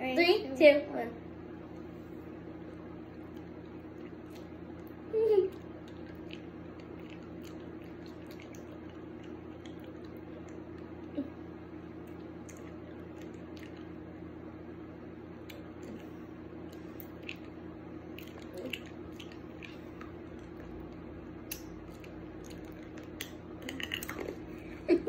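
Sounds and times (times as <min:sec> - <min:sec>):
low room hum: 0:00.0 - 0:25.0
wet mouth clicks and chewing: 0:03.2 - 0:11.1, 0:12.0 - 0:14.0, 0:15.4 - 0:24.5.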